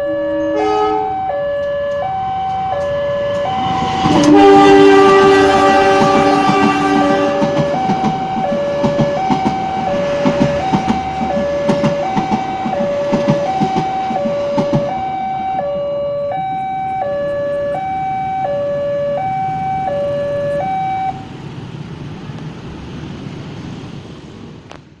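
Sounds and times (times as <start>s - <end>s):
two-tone level crossing alarm: 0.0s - 21.3s
train wheels clattering on rails: 1.6s - 15.2s.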